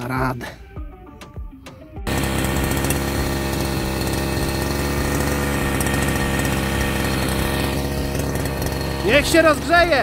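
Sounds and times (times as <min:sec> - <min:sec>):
brush cutter idling: 0:02.1 - 0:10.0.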